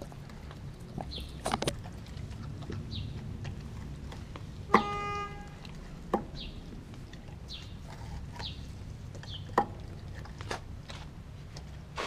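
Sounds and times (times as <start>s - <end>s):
dog chewing: 0.0s - 12.0s.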